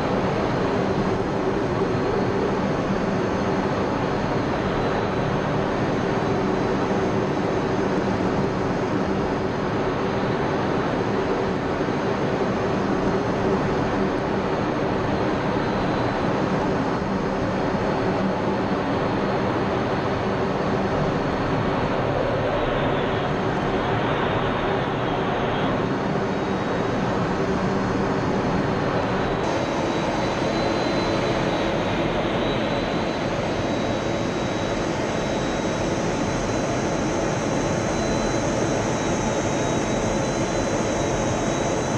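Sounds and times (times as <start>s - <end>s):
jet engine and rushing air: 21.2s - 36.5s
thin high whine: 29.2s - 41.9s.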